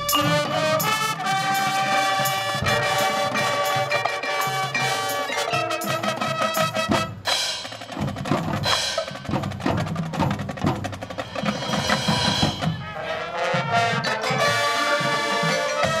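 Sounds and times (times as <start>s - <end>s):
held brass tones: 0.0s - 7.6s, 12.5s - 16.0s
marching drums: 0.0s - 16.0s
mallet percussion strikes: 2.7s - 6.6s.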